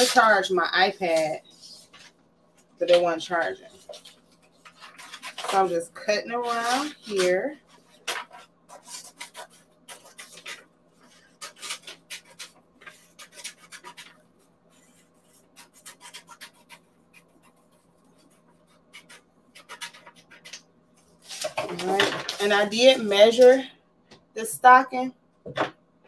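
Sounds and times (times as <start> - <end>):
scissors snipping paper: 3.8 - 14.2, 14.8 - 17.6, 18.9 - 20.6.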